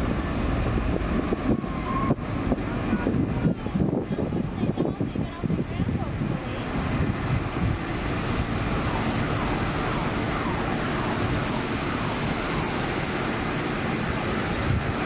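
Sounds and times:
jet engines at takeoff thrust: 0.0 - 15.0
faint whines falling in pitch: 1.4 - 2.2.

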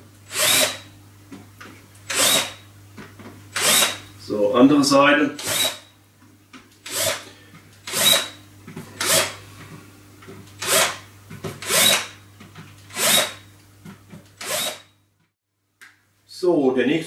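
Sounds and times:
cordless drill countersinking wood: 0.3 - 0.8, 2.1 - 2.6, 3.5 - 4.0, 5.4 - 5.8, 6.8 - 7.2, 7.8 - 8.4, 11.6 - 12.1, 12.9 - 13.4, 14.4 - 14.9.

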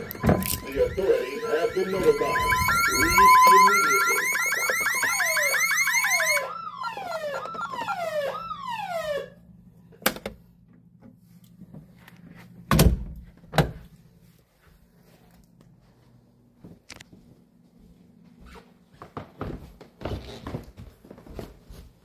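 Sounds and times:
warbling alarm siren: 0.0 - 9.4.

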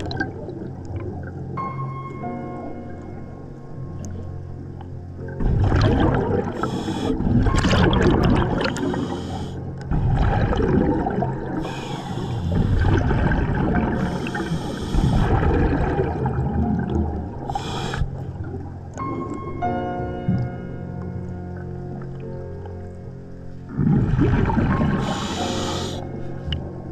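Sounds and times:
gurgling exhaled bubbles: 0.0 - 1.5, 5.2 - 18.8, 23.7 - 26.1
regulator inhale hiss: 6.6 - 7.4, 8.7 - 9.8, 11.6 - 12.8, 13.9 - 15.4, 17.5 - 18.3, 25.0 - 26.2.

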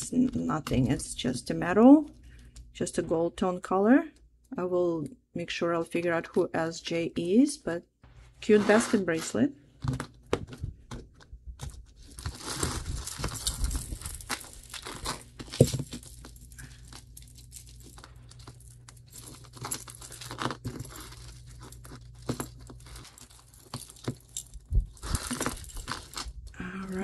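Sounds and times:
packaging crinkling: 11.6 - 26.6.

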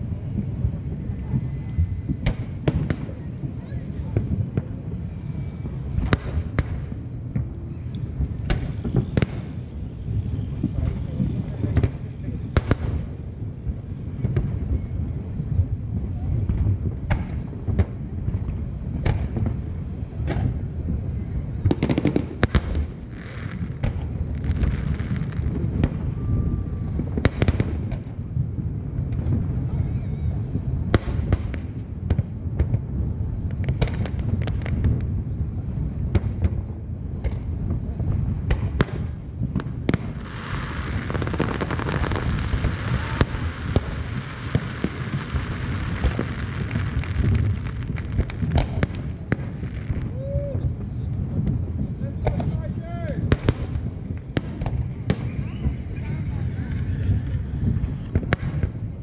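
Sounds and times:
low rumble: 0.0 - 40.2
dense steady hiss: 0.0 - 59.0
fireworks bangs and booms: 0.0 - 59.0.

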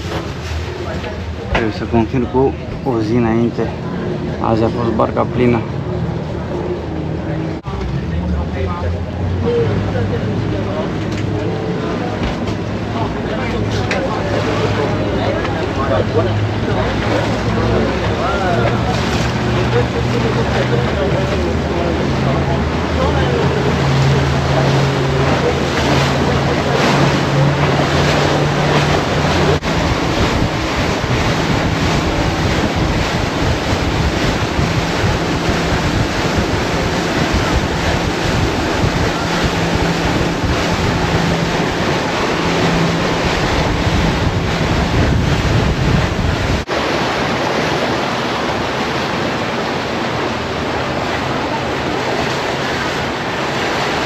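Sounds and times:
churning water: 0.0 - 54.0
motorboat engine hum: 0.0 - 54.0
wind buffeting microphone: 21.7 - 54.0.

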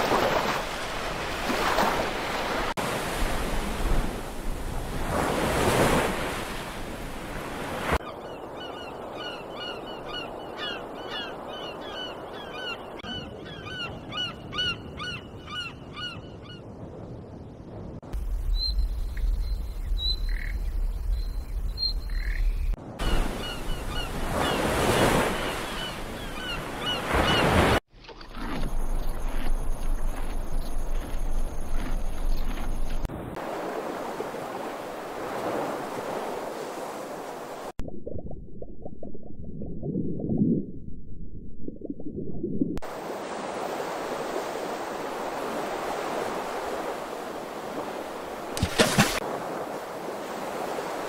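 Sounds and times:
sea surf: 0.0 - 8.1, 22.8 - 27.8, 33.0 - 37.8, 42.8 - 51.0
bird chirps: 18.4 - 24.6.

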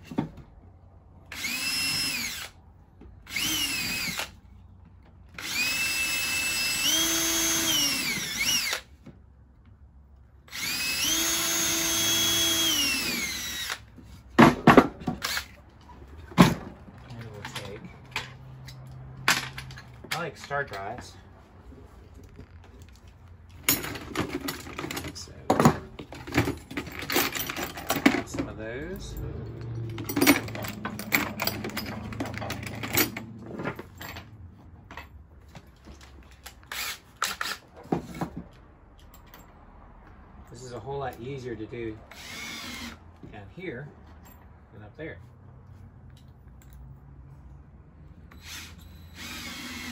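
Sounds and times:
cordless drill drilling into wood: 1.3 - 2.6, 3.3 - 4.4, 5.4 - 8.9, 10.5 - 13.9, 15.2 - 15.6, 36.6 - 37.6, 42.1 - 43.0, 48.3 - 49.9.

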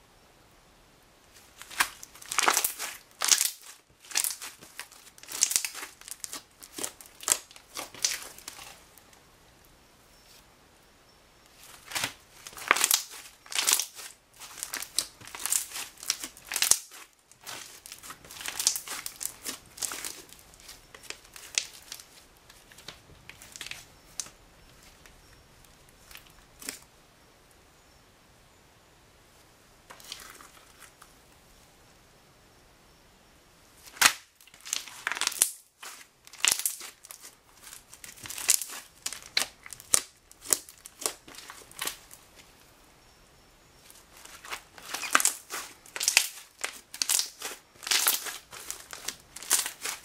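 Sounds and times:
hands squishing slime: 1.5 - 8.8, 11.6 - 24.3, 34.0 - 42.1, 44.1 - 50.0.

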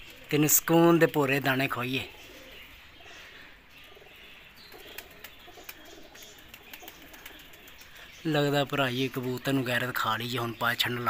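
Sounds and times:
pigeons cooing: 0.0 - 8.3.

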